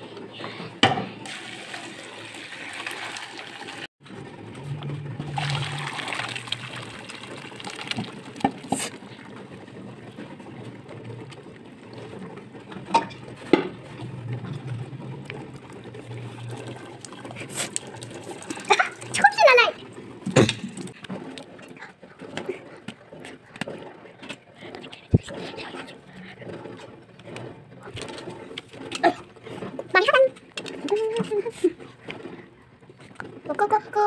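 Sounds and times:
broth pouring and splashing: 1.3 - 4.0, 5.2 - 9.6, 13.8 - 19.4.

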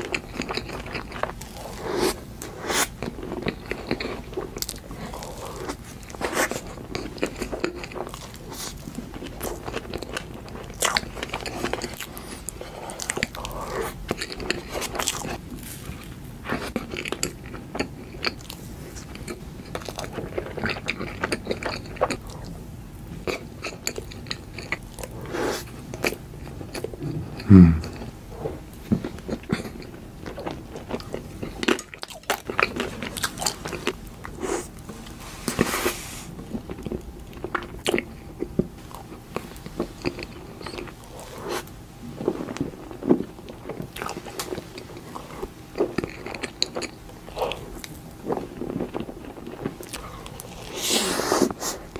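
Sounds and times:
chewing and biting soft cakes: 0.0 - 51.9.

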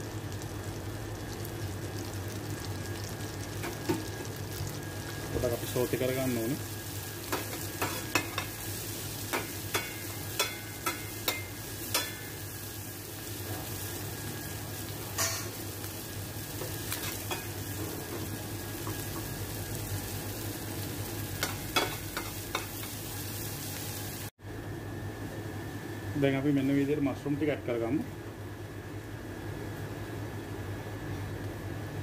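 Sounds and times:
onions sizzling in a frying pan: 0.0 - 24.3.

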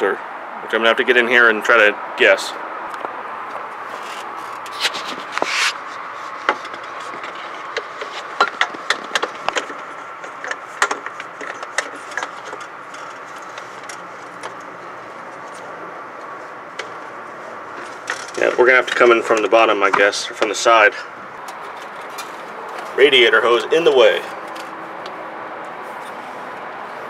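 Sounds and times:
wrench knocking against hoses: 6.5 - 14.6.

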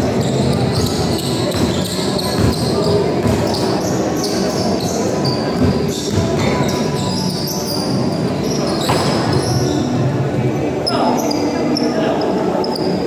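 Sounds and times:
din of crowd and players: 0.0 - 13.0
basketball bouncing on court: 0.8 - 3.6.

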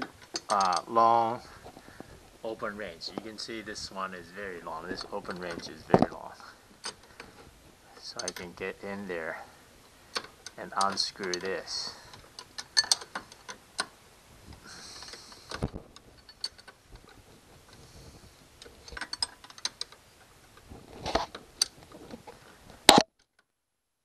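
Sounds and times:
wrench clicking on bolt: 0.0 - 0.9, 10.1 - 13.9.

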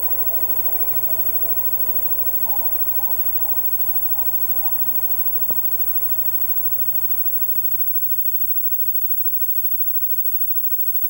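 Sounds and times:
buzzing mains hum: 0.0 - 8.0
tape hiss: 0.0 - 8.0.

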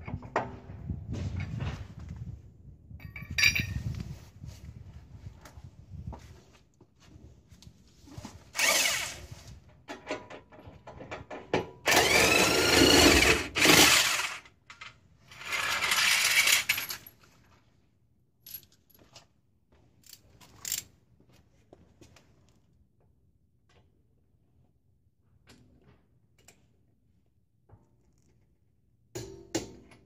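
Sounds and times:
metallic tool clinks: 3.0 - 3.8
electric impact wrench whirring: 8.6 - 9.3, 11.9 - 14.5.

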